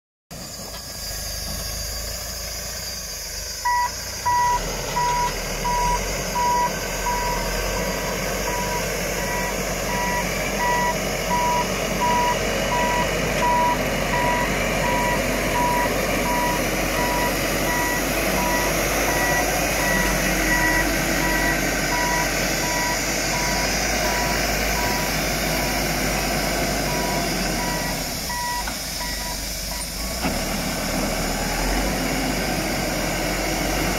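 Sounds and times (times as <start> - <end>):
loader engine running: 0.4 - 33.9
reversing alarm beeping: 3.6 - 26.2, 26.8 - 30.0.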